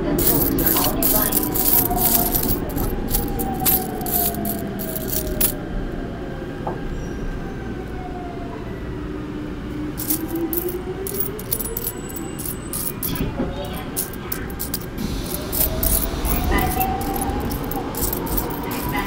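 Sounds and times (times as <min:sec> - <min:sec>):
coins clinking: 0:00.0 - 0:05.6, 0:10.0 - 0:19.0
subway train rumble: 0:14.9 - 0:17.1.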